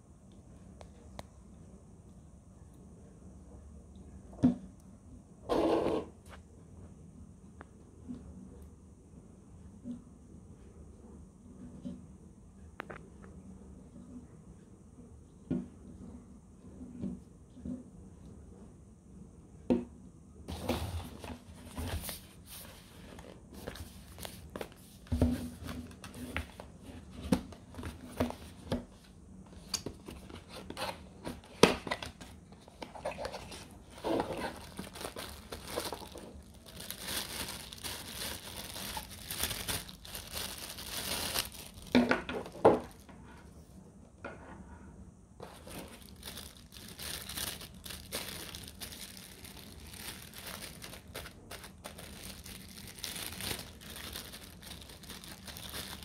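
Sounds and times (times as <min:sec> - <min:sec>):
packaging crinkling and rustling: 0:20.5 - 0:29.0, 0:29.6 - 0:43.1, 0:45.4 - 0:56.0.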